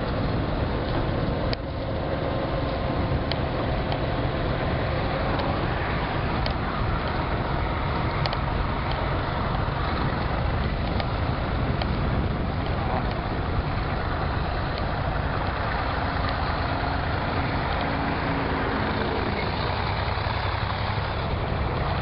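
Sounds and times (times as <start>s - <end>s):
vehicle road noise: 0.0s - 22.0s
faint clicks: 2.6s - 4.1s, 6.3s - 7.2s, 8.0s - 9.0s, 9.8s - 11.2s.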